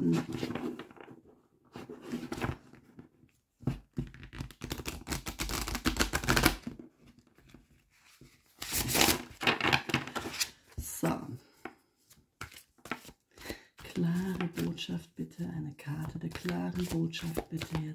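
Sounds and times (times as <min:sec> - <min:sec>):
cards being shuffled: 0:04.1 - 0:06.7, 0:08.0 - 0:10.8, 0:11.6 - 0:14.8, 0:16.0 - 0:17.9.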